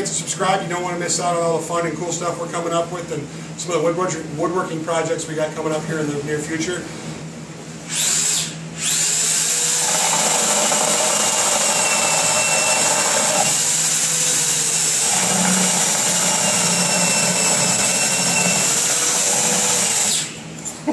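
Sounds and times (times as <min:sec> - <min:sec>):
power drill whining: 0:07.9 - 0:20.4.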